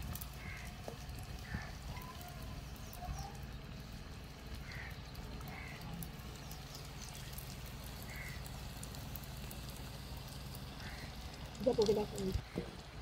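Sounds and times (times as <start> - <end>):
food sizzling in oil: 0.0 - 13.0
low rumble of fire: 0.0 - 13.0
bird calls: 0.3 - 3.9, 4.5 - 8.6.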